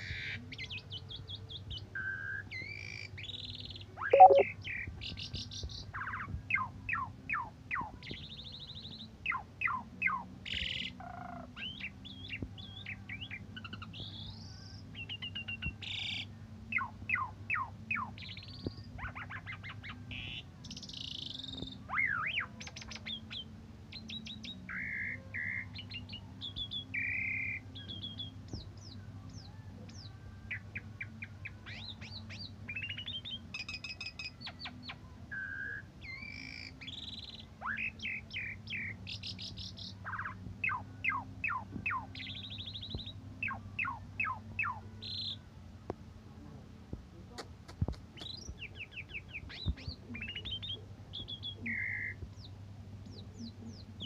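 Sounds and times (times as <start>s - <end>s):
starling singing: 4.2s - 4.4s.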